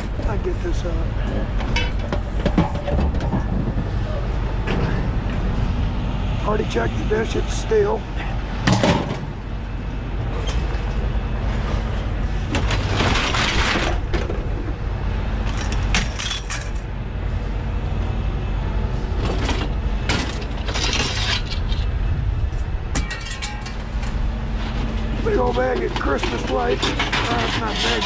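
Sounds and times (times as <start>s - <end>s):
scrap metal clattering and scraping: 0.0s - 5.7s, 8.2s - 9.5s, 10.3s - 14.7s, 15.4s - 16.9s, 19.1s - 22.0s, 22.9s - 28.0s
low engine hum: 0.0s - 27.1s.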